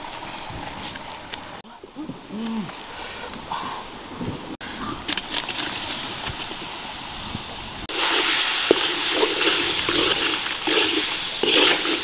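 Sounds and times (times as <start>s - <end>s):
snails sizzling in hot oil: 5.5s - 12.0s
shells clicking and scraping on pan: 8.0s - 12.0s.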